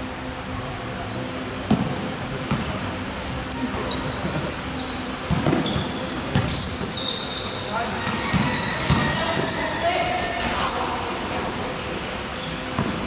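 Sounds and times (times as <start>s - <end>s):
sneakers squeaking on court: 3.4s - 13.0s
basketball bouncing: 8.2s - 9.5s.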